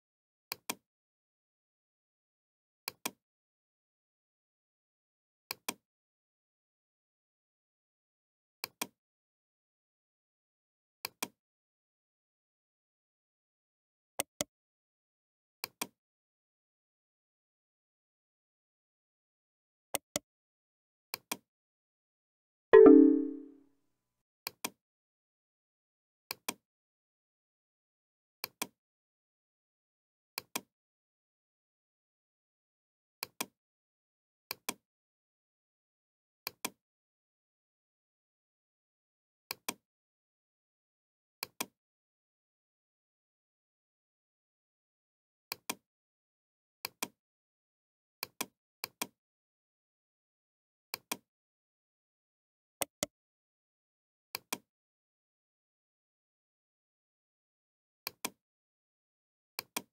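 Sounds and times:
computer alert chime: 22.8s - 23.5s.

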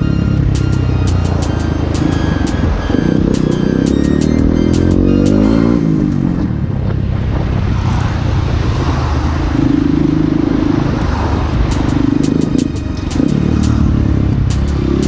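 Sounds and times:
small motorcycle engine running: 0.0s - 6.7s
wind and road rush: 0.0s - 15.0s.

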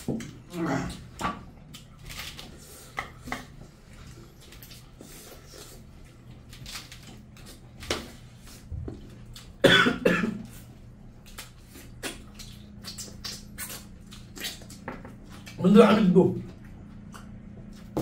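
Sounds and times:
people eating by hand: 0.0s - 9.6s
loud cough: 9.6s - 10.4s.

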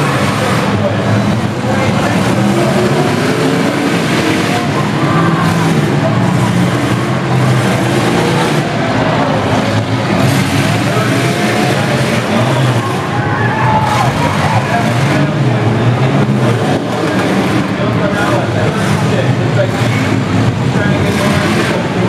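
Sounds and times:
car engines revving: 0.0s - 22.0s.

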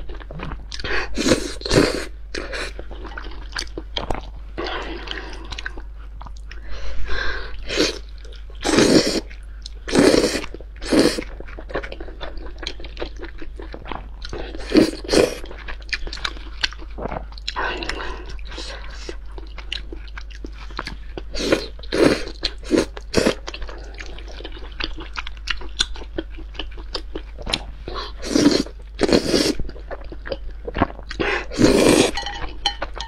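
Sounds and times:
chewing: 0.0s - 6.6s, 7.9s - 33.0s
wet noodle slurping: 8.6s - 9.3s, 9.9s - 11.3s, 28.2s - 29.6s, 31.5s - 32.2s.

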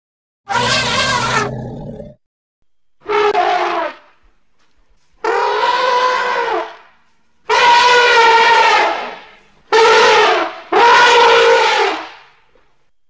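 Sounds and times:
mammoth trumpeting: 0.5s - 1.7s, 3.0s - 4.1s, 5.2s - 6.8s, 7.5s - 12.2s.

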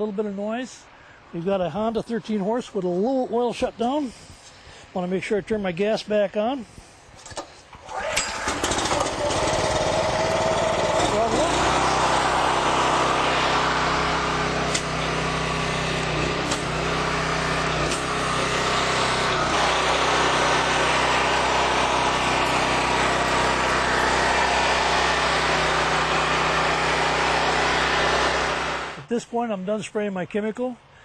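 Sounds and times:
pressure washer engine running: 7.9s - 29.0s.

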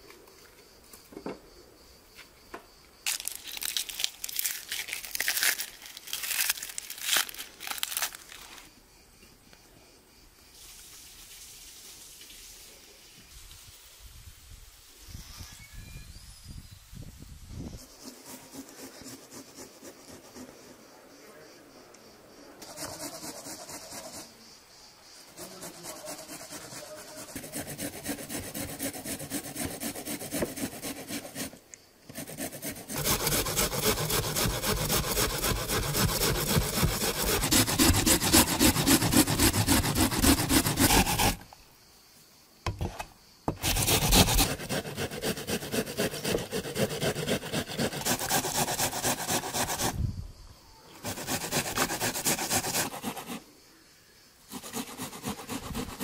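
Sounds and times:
onion grated on metal grater: 32.5s - 41.4s, 43.6s - 49.9s.

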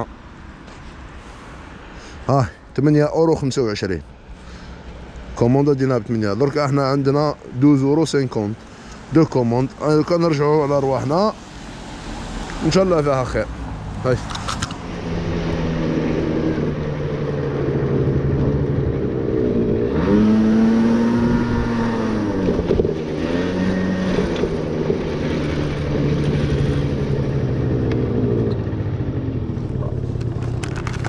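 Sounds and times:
motor scooter engine running: 15.0s - 31.0s.

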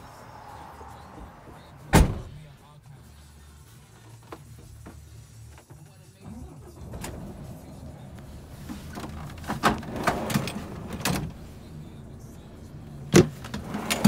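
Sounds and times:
plastic drawer rattling and scraping: 8.6s - 11.3s, 13.1s - 14.0s.

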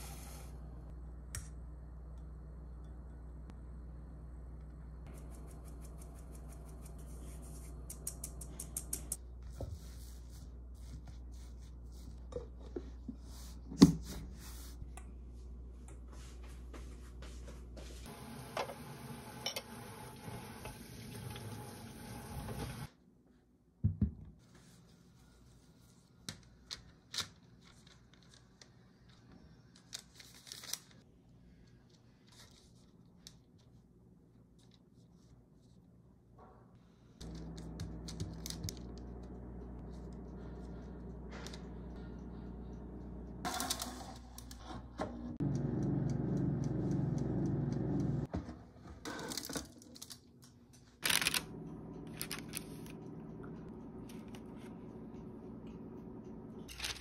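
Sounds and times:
tap water running: 18.1s - 22.9s.

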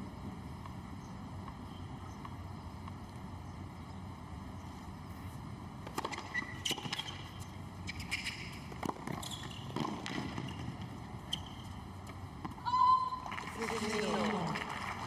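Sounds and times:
shoes squeaking on court: 5.1s - 12.6s
racquets striking tennis ball: 5.8s - 12.6s
ball bouncing on court: 8.2s - 11.6s.

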